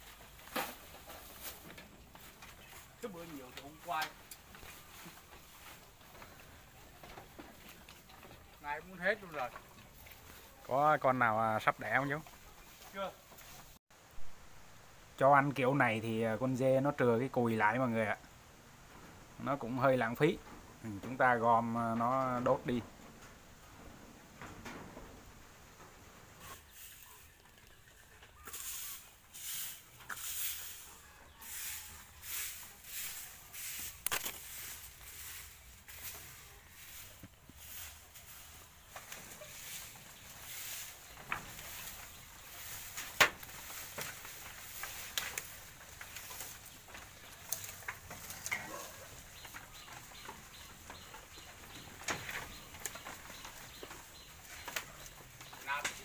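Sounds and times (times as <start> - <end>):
leaves rustling: 0.0 - 56.0
goats tearing leaves: 31.5 - 56.0.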